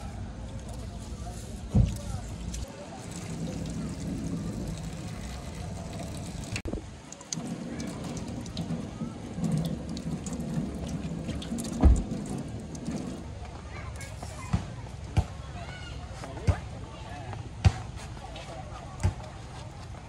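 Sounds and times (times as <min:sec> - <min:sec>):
tap water splashing into metal sink: 0:01.7 - 0:13.4.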